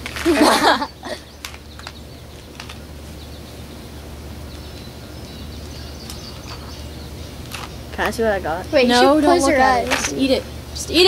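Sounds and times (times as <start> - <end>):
steady low hum: 0.0 - 11.0
faint bird chirps: 0.7 - 8.0.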